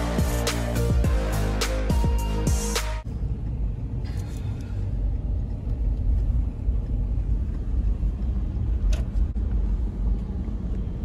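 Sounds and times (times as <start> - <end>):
vehicle driving rumble from inside: 3.0 - 11.0.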